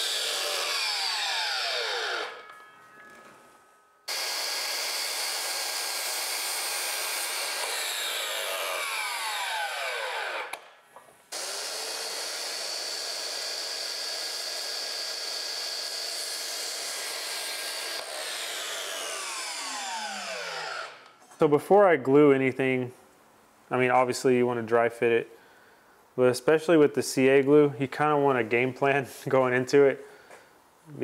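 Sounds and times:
miter saw cutting wood: 0.0 - 2.6, 4.1 - 10.7, 11.3 - 21.2.

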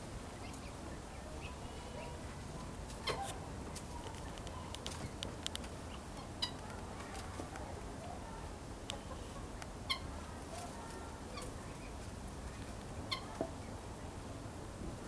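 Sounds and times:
guineafowl calls: 5.8 - 6.7, 8.9 - 10.3, 11.3 - 13.8.

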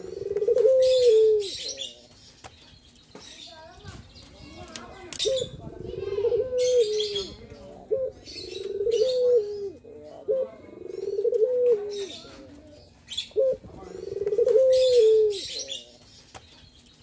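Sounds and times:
dove cooing: 0.0 - 2.0, 5.2 - 16.0
small birds chirping: 0.0 - 17.0.

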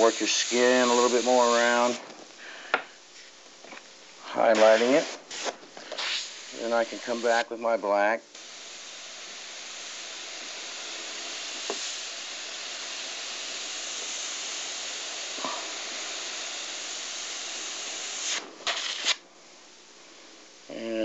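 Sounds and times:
airbrush spraying hiss: 0.0 - 2.1, 4.3 - 7.5, 8.3 - 19.2.

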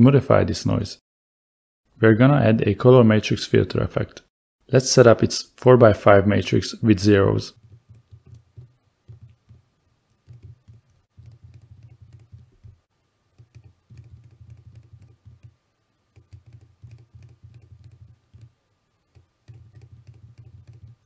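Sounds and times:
keyboard typing: 7.6 - 18.5, 19.1 - 21.0.

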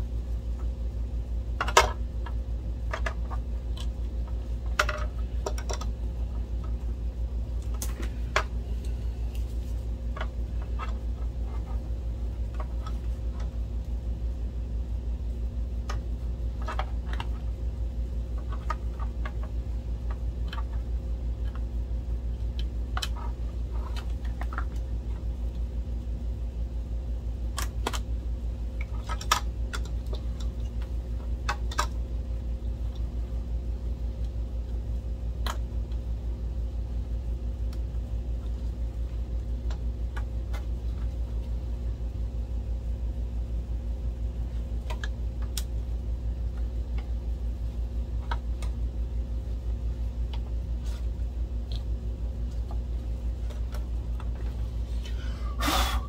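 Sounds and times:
low hum: 0.0 - 56.0
clicks and taps of plastic parts: 1.6 - 5.9, 28.8 - 32.0, 44.8 - 45.7.

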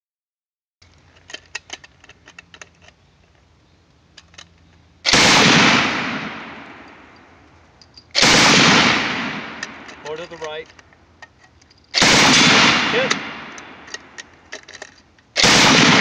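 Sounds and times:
automatic rifle burst: 5.1 - 6.3, 8.1 - 10.6, 11.9 - 16.0.

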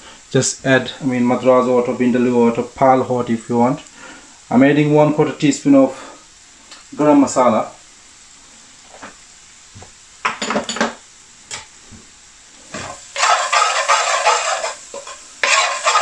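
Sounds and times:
spices sizzling in oil: 0.0 - 16.0
metal spoon scraping a pan: 12.7 - 16.0.

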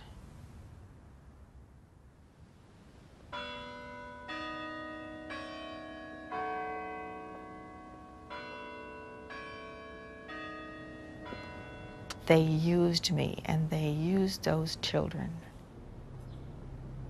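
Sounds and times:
clock bells chiming: 3.4 - 12.8.

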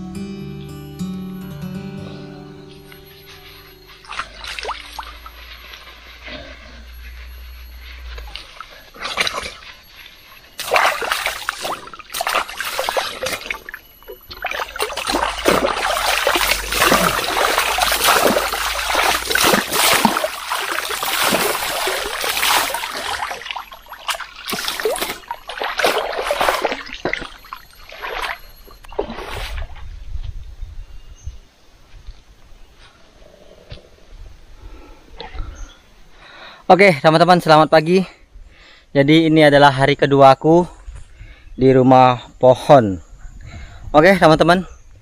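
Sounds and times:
water poured splashing into stream: 4.0 - 5.3, 8.3 - 9.7, 10.5 - 29.8.

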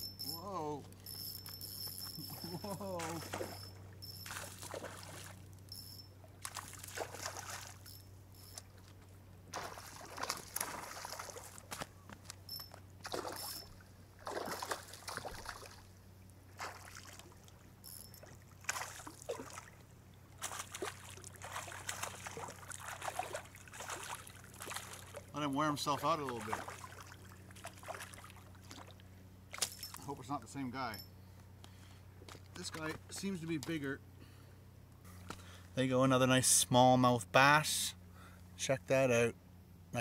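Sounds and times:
fish splashing at water surface: 2.6 - 5.4, 6.4 - 7.9, 9.5 - 11.8, 13.0 - 15.9, 16.5 - 25.3, 26.4 - 30.0.

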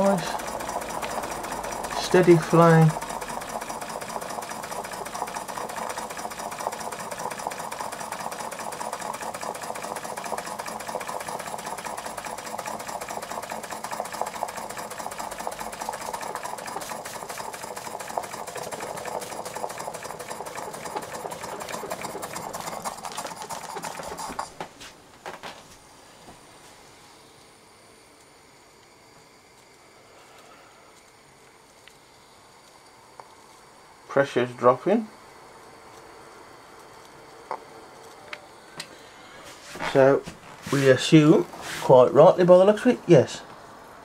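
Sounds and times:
model steam engine ticking: 0.0 - 24.5.

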